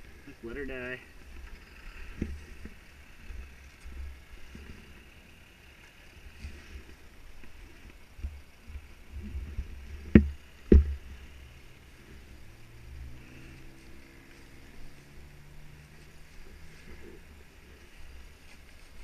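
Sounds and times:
faint engine running: 0.0s - 19.0s
low rumbling handling thumps: 6.3s - 13.2s.

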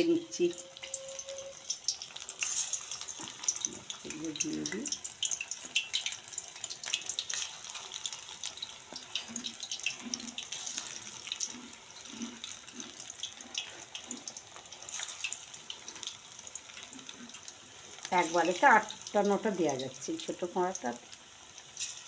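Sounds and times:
fritters deep-frying in oil: 0.0s - 22.0s.

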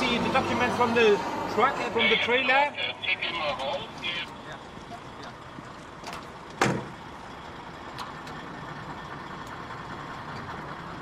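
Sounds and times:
truck engines idling: 0.0s - 11.0s
truck cab door shutting: 6.6s - 7.0s.

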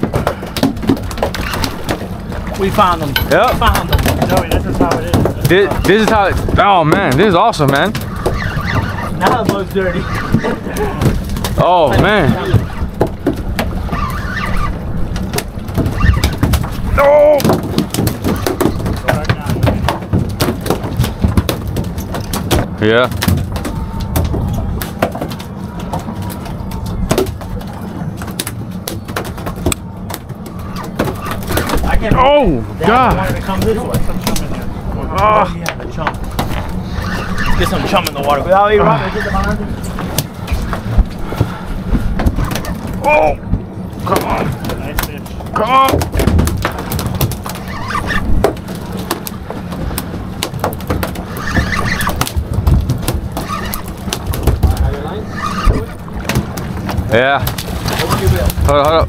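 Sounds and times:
knocks and clatter on deck: 0.0s - 34.7s, 35.6s - 36.8s, 39.8s - 59.0s
boat engine humming: 0.0s - 59.0s
short squeaks: 8.0s - 10.8s, 13.8s - 14.9s, 15.9s - 16.4s, 36.5s - 38.0s, 47.5s - 48.4s, 51.2s - 52.3s, 53.3s - 54.1s, 55.1s - 56.0s.

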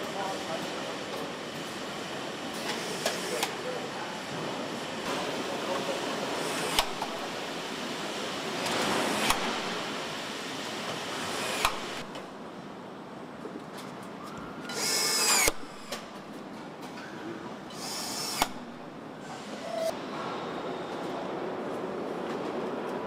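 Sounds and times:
factory noise hiss: 0.0s - 12.1s, 17.5s - 21.6s
power screwdriver whirring: 14.7s - 16.0s, 17.7s - 18.8s
screwdriver sharp click: 17.8s - 18.6s.

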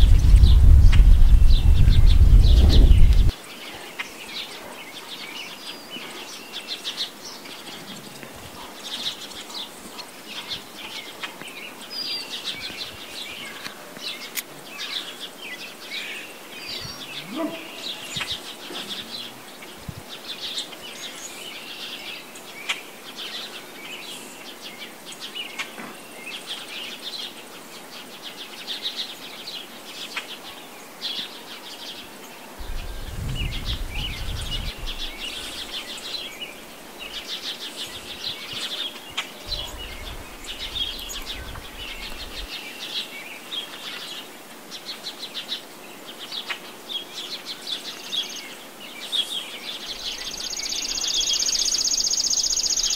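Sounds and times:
low rumbling: 0.0s - 3.3s, 32.6s - 35.8s
small birds chirping and singing: 0.0s - 52.9s.

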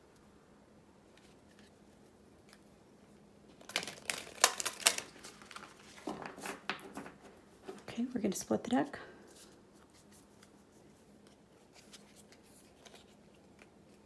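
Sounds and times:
cards riffle-shuffled: 3.6s - 7.2s, 9.3s - 14.0s.

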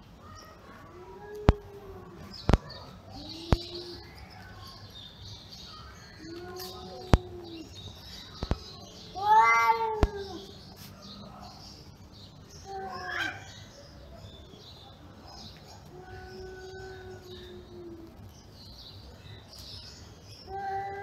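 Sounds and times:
cats yowling: 0.6s - 4.4s, 6.2s - 7.8s, 9.1s - 10.9s, 12.6s - 13.5s, 15.8s - 18.3s, 20.5s - 21.0s
sharp clicks: 6.2s - 8.9s.

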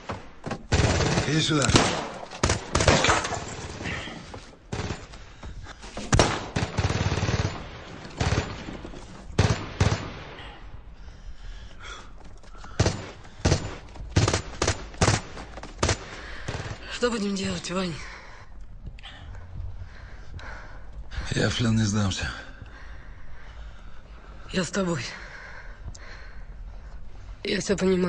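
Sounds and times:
gunshots and bursts: 0.0s - 3.8s, 4.6s - 5.4s, 6.0s - 10.8s, 12.6s - 17.4s.

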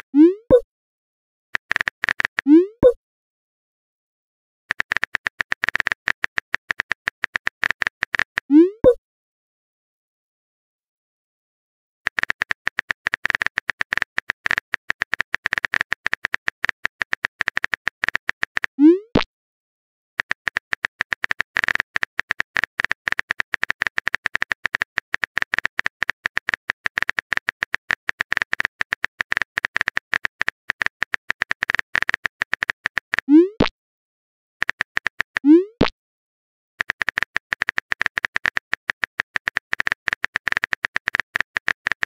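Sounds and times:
keyboard typing clicks: 1.6s - 3.0s, 4.7s - 9.0s, 12.1s - 19.3s, 20.2s - 33.7s, 34.6s - 35.9s, 36.8s - 42.0s.

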